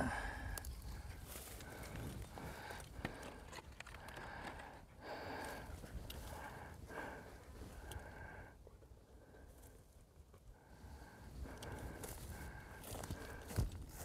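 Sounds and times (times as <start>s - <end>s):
small clicks and rustles: 0.6s - 6.6s.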